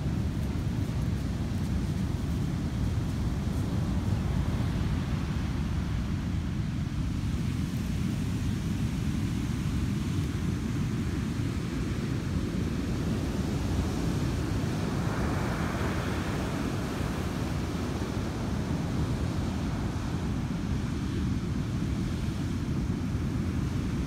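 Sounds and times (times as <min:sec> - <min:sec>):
wind rumbling on microphone: 0:00.0 - 0:24.0
ocean surf washing: 0:12.5 - 0:24.0.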